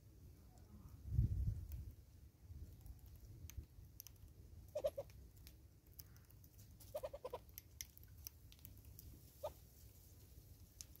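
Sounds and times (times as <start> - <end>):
faint scattered clicks: 2.6 - 9.5, 10.6 - 11.0
low clucking calls: 4.7 - 5.1, 6.9 - 7.4.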